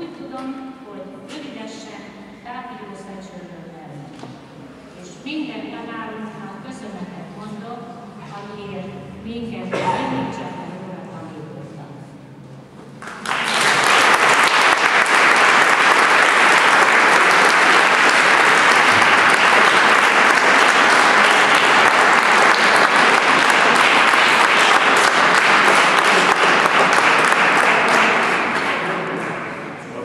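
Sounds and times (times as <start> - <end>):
audience applauding: 13.0 - 29.8.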